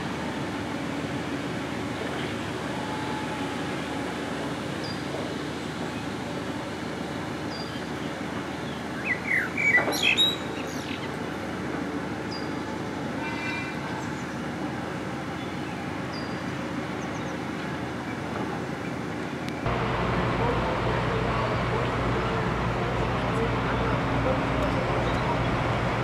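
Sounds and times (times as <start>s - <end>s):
construction machinery hum: 0.0s - 26.0s
birds chirping: 7.4s - 11.4s, 12.2s - 14.5s, 15.3s - 19.6s.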